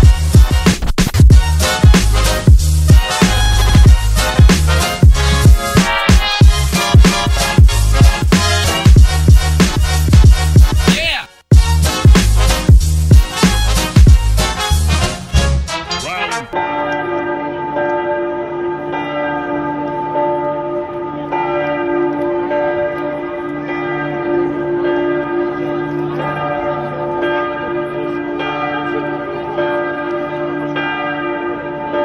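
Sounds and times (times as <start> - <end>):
bells ringing: 15.9 - 32.0.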